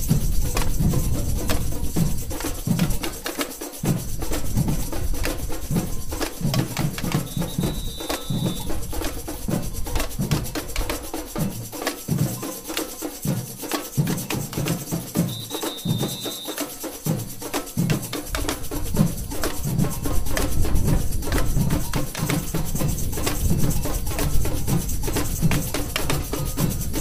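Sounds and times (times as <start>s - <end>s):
hand drum and wood block strokes: 0.0s - 27.0s
rattling snare drums: 0.0s - 27.0s
held high tone: 7.1s - 8.9s, 15.2s - 16.7s.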